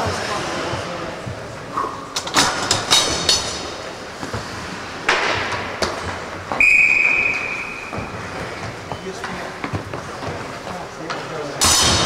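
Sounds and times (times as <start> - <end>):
referee whistle blast: 6.6 - 8.0.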